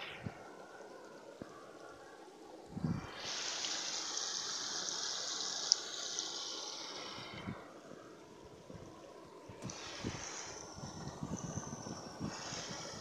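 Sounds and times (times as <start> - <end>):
small waterfall rushing: 3.0 - 7.5.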